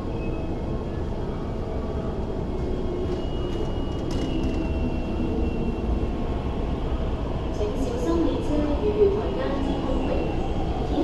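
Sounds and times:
train rumble: 0:00.0 - 0:11.0
train motor whine: 0:02.6 - 0:05.8.

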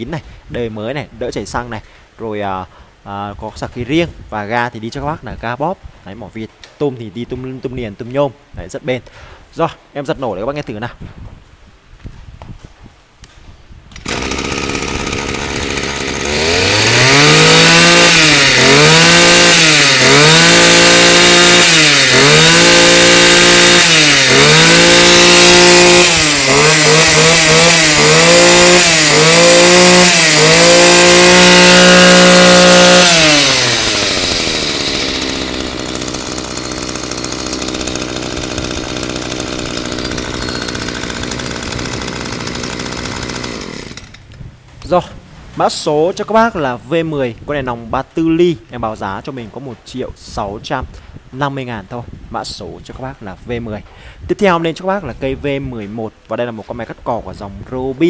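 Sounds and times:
brush cutter engine revving: 0:13.9 - 0:44.9.

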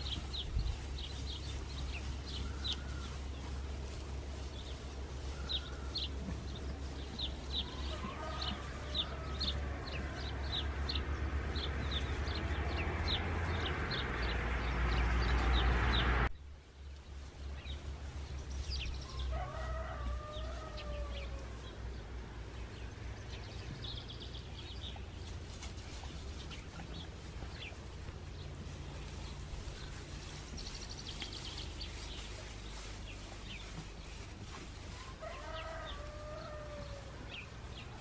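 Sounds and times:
small birds chirping: 0:00.0 - 0:38.0
rooster crowing: 0:07.6 - 0:10.5, 0:19.0 - 0:21.6, 0:35.1 - 0:37.4.

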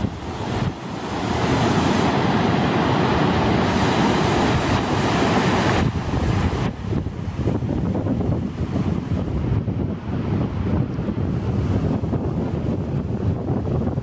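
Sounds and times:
river rapids roaring: 0:00.0 - 0:09.1
wind on microphone: 0:00.0 - 0:14.0.

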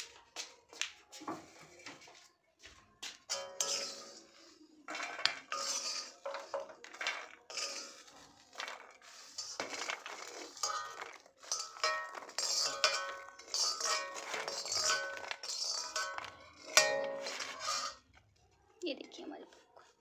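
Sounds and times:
metal ladle scraping pan: 0:03.3 - 0:18.2
popcorn clattering into steel plate: 0:03.3 - 0:18.3.

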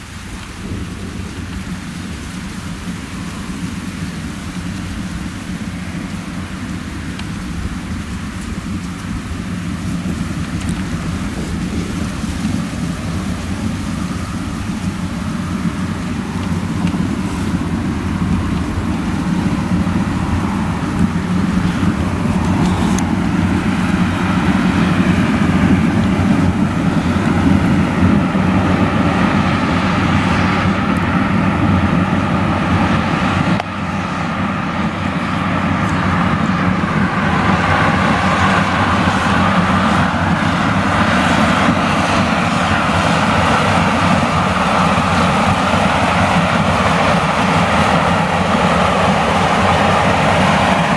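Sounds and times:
combine harvester droning: 0:00.0 - 0:50.9.

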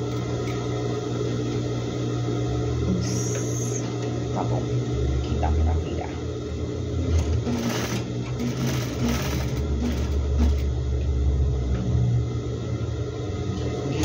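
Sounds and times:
sewing machine running: 0:07.0 - 0:10.8.

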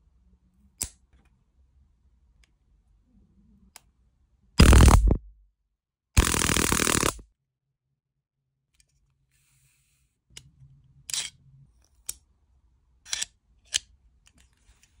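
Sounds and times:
sharp metallic clicks: 0:04.6 - 0:05.3, 0:06.2 - 0:07.2
stun gun electric crackle: 0:04.6 - 0:05.3, 0:06.2 - 0:07.2.

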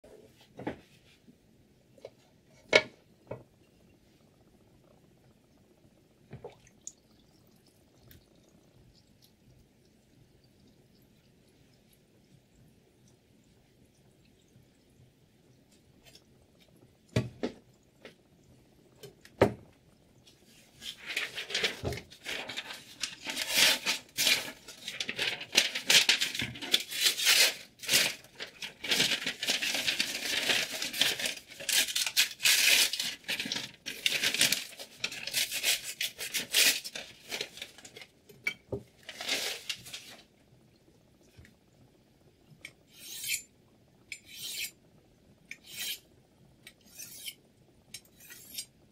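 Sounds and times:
knife blade scraping and tearing: 0:43.0 - 0:43.5, 0:45.6 - 0:46.0, 0:46.9 - 0:47.4, 0:48.1 - 0:48.7.

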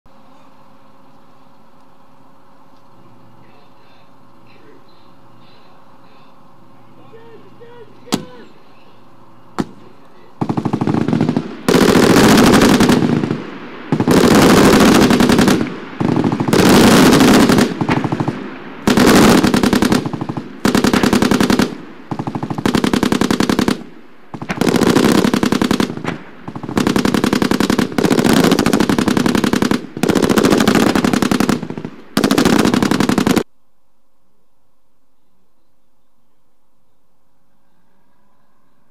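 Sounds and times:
machine-gun fire bursts: 0:10.4 - 0:33.5.

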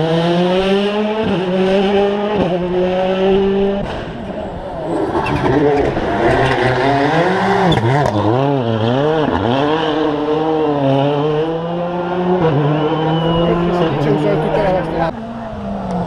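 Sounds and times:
rally car engine revving: 0:00.0 - 0:16.0.

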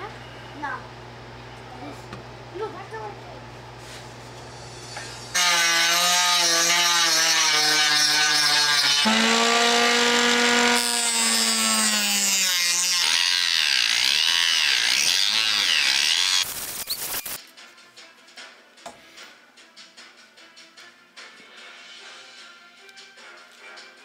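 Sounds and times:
bench saw cutting: 0:05.3 - 0:17.4.

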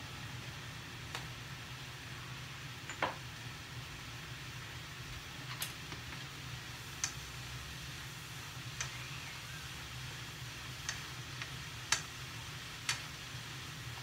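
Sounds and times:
food sizzling in frying pan: 0:00.0 - 0:14.0
chopsticks clicking against pan: 0:07.0 - 0:07.2, 0:08.8 - 0:09.0, 0:10.8 - 0:12.1.

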